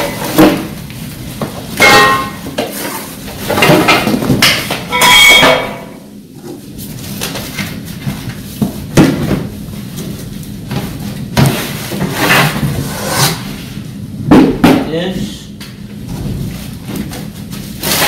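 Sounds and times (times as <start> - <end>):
sheet metal parts being handled: 1.7 - 6.0
ringing metal clang: 1.8 - 2.5, 4.9 - 6.0.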